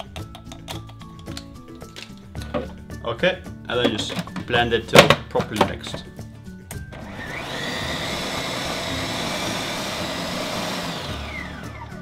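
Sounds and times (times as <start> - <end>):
food processor motor whining: 6.8 - 12.0.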